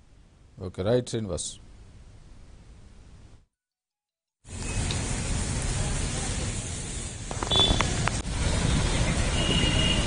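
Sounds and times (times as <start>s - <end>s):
short high beep: 7.5s - 7.8s.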